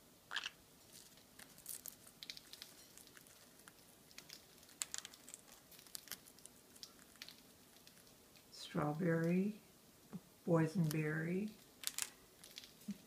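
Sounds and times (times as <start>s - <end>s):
parrots cracking food with beaks: 0.3s - 8.5s, 10.9s - 13.0s.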